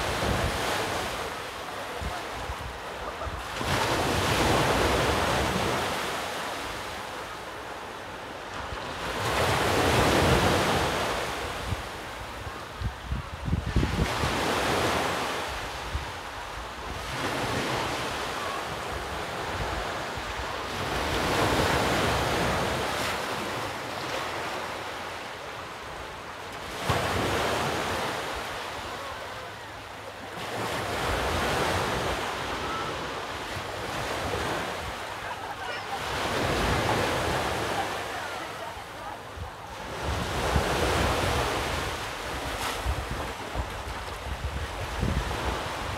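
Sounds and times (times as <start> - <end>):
sea waves breaking on shore: 0.0 - 45.9
wind rumbling on microphone: 11.3 - 17.0, 39.3 - 45.9.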